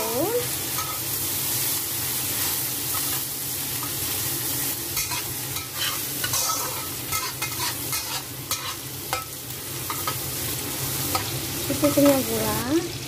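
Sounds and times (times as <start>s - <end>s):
food sizzling in hot oil: 0.0s - 13.0s
metal spatula scraping wok: 0.7s - 1.2s, 5.0s - 10.3s.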